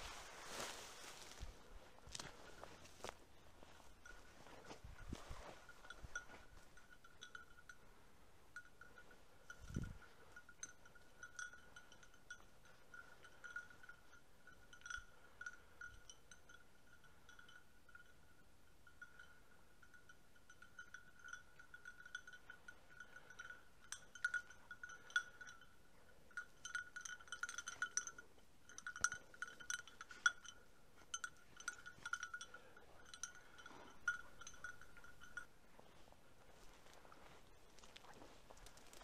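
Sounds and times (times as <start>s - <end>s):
dry bracken crackling underfoot: 0.0s - 6.8s, 35.7s - 39.0s
dog collar bell jingling: 3.8s - 36.0s.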